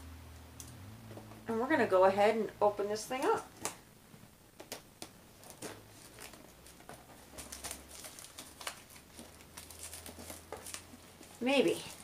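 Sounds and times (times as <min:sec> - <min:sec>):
handling cardboard box and paper: 0:05.3 - 0:12.0.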